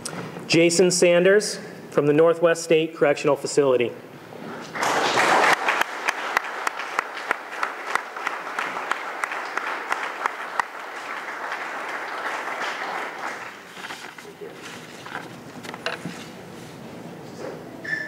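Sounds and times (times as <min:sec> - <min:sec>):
audience applauding: 0:04.7 - 0:15.2.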